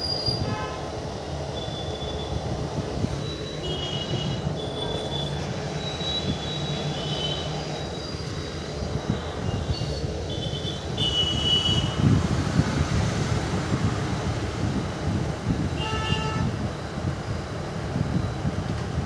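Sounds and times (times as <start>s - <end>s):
train rumbling: 0.0s - 19.0s
high train horn toots: 0.4s - 0.9s, 15.8s - 16.5s.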